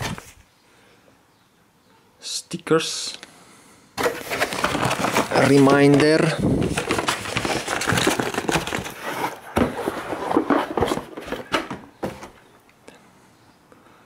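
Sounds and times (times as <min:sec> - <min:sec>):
cardboard and paper rustling: 0:04.0 - 0:12.4.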